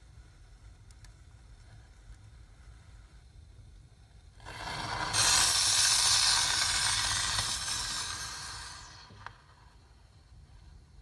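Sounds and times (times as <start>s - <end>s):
firework hissing: 4.3s - 11.0s.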